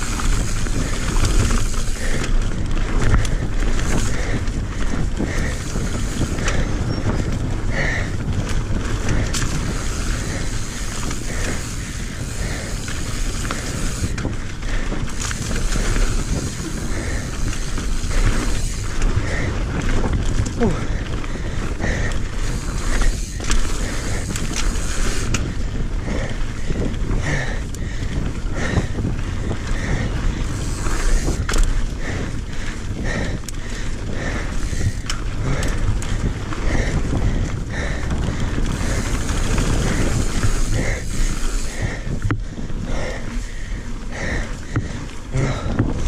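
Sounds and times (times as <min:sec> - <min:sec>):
bike tyres rumbling on dirt: 0:00.0 - 0:46.0
wind rush on microphone: 0:00.0 - 0:46.0.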